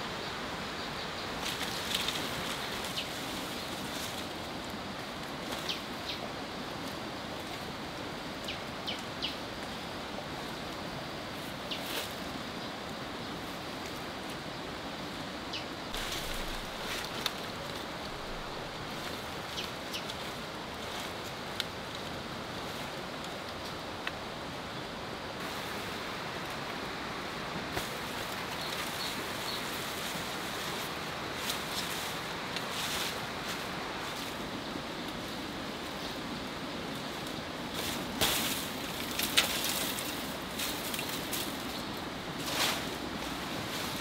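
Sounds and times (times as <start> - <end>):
outdoor hiss: 0.0 - 44.0
dry palm fronds rustling: 1.2 - 15.2, 15.8 - 44.0.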